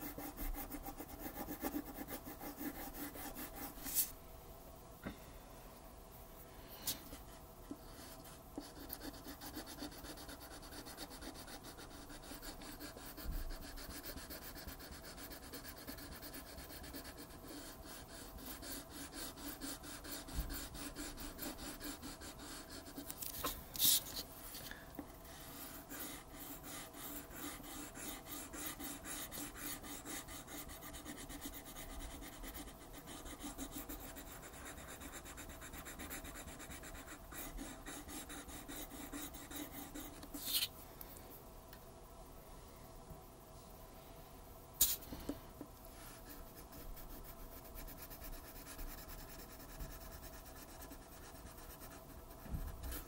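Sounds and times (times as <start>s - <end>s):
crayon rubbing on paper: 8.1s - 23.2s, 25.5s - 40.7s
crayon scrape: 37.8s - 40.7s.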